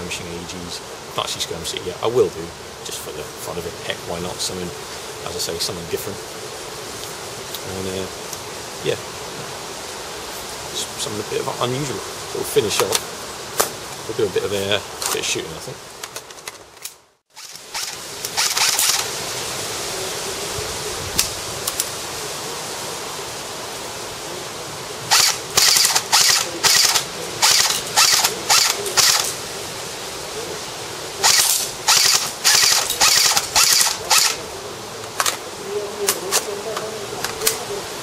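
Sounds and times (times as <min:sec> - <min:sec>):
steady hiss: 0:00.0 - 0:38.0
airsoft gun firing bursts: 0:25.1 - 0:29.2, 0:31.2 - 0:34.4.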